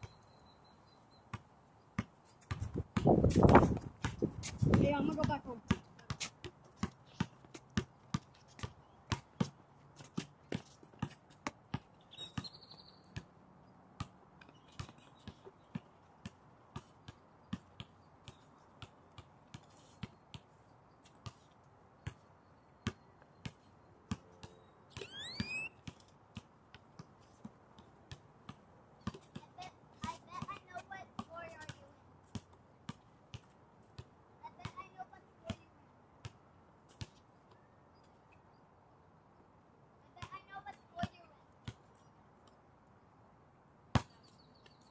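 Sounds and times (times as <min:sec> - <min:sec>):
basketball bouncing: 0:02.0 - 0:09.6, 0:27.8 - 0:34.9
brief rising squeal: 0:25.0 - 0:25.7.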